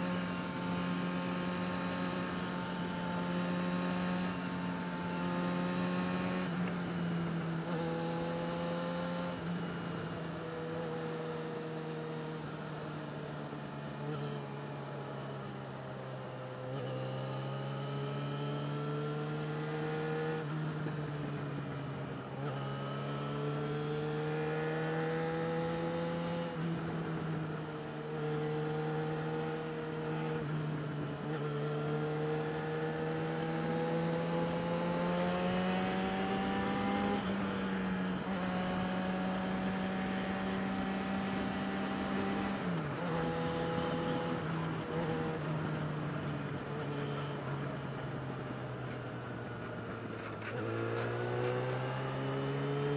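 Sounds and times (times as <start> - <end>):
motorcycle engine revving: 16.6 - 21.4, 22.2 - 48.0, 49.3 - 52.9.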